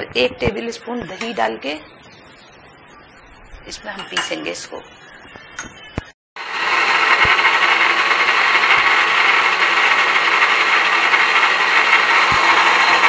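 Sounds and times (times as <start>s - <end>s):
mixer grinder whirring: 6.4s - 13.0s.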